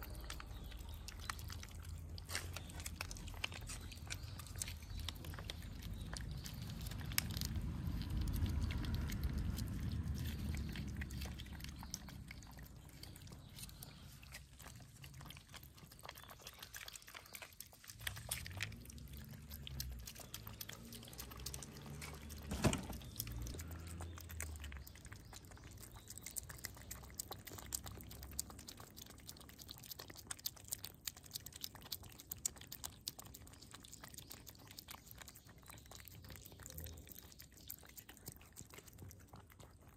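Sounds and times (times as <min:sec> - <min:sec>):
cats chewing food: 0:00.0 - 0:39.9
low rumble: 0:05.0 - 0:14.4.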